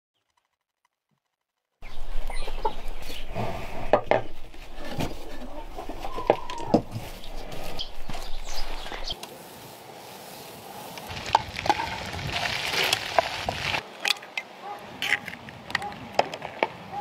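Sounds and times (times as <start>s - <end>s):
chickens clucking: 1.8s - 9.4s.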